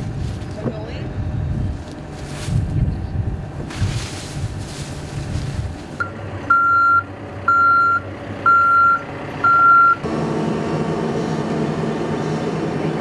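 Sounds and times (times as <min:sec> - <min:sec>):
backhoe engine rumble: 0:00.0 - 0:13.0
reversing alarm beeping: 0:06.0 - 0:10.0.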